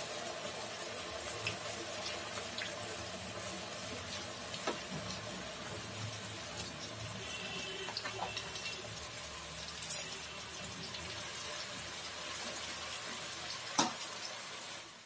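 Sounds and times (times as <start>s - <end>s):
potatoes deep-frying in oil: 0.0s - 15.0s.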